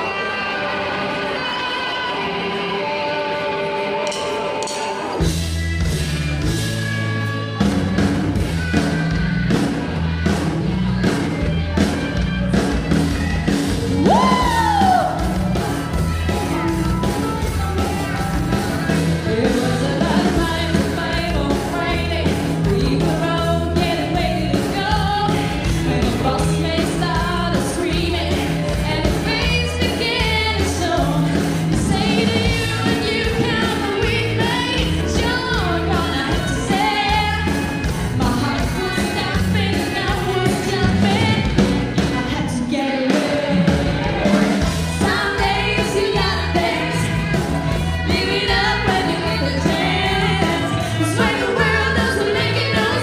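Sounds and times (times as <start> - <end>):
live rock band playing: 0.0 - 53.0
woman singing lead vocal: 14.0 - 15.2, 19.2 - 44.3, 44.9 - 53.0.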